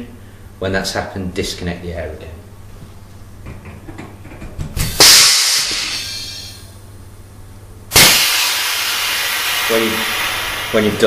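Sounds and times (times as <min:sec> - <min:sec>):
compressed air hissing: 0:04.8 - 0:06.8, 0:07.9 - 0:11.0
sudden air blast: 0:04.8 - 0:06.8, 0:07.9 - 0:11.0.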